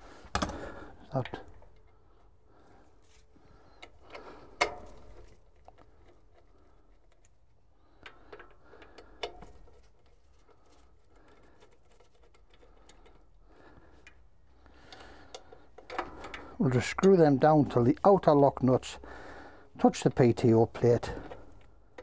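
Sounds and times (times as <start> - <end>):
metallic clicks and scraping: 3.1 - 13.4.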